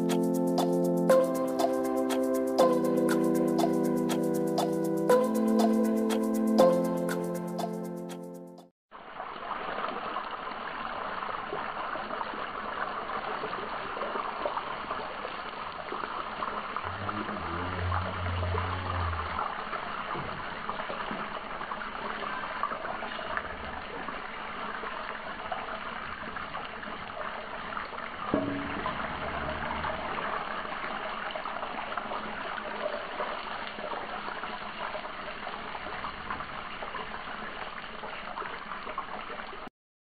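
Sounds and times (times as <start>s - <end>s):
chicken deep-frying in oil: 8.9s - 39.7s.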